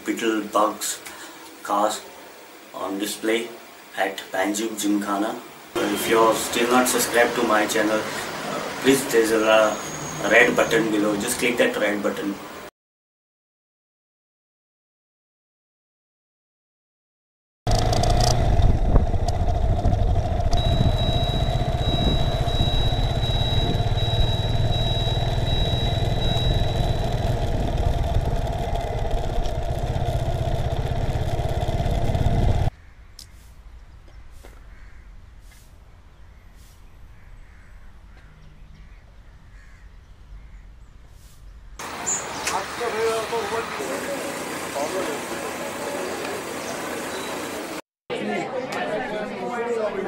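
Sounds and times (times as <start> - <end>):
outdoor ambience: 0.0 - 12.7, 17.7 - 47.8
scooter engine drone: 5.8 - 9.4, 17.7 - 32.7, 41.8 - 47.8
thin high whine: 17.7 - 32.7
wind rush: 17.9 - 32.7.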